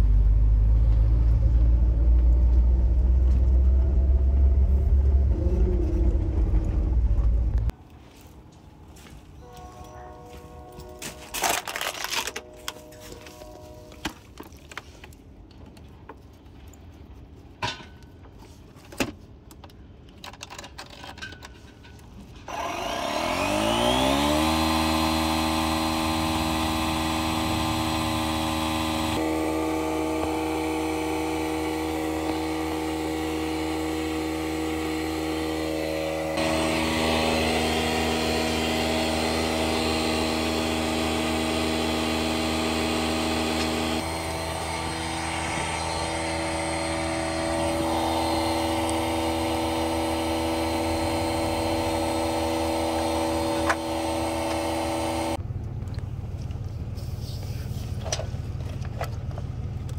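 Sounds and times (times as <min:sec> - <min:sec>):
tyre inflator compressor running: 0:22.5 - 0:55.4.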